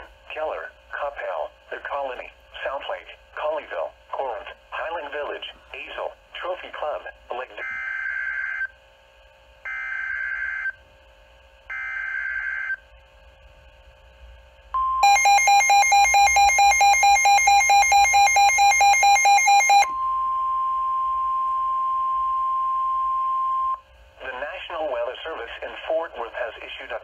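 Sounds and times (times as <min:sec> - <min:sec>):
pulsing radio alarm beeps: 0:07.6 - 0:08.7, 0:09.7 - 0:10.8, 0:11.7 - 0:12.8, 0:14.8 - 0:23.8
steady warning tone: 0:14.7 - 0:25.0.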